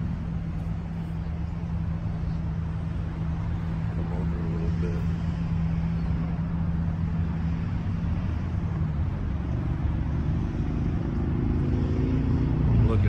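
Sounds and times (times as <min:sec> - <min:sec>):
car engine idling: 0:00.0 - 0:11.2.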